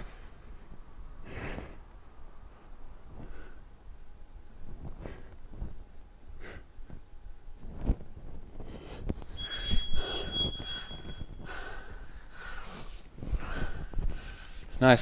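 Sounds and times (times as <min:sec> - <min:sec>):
man breathing hard: 0:01.2 - 0:02.0, 0:08.6 - 0:14.8
high-pitched tone: 0:09.4 - 0:11.4.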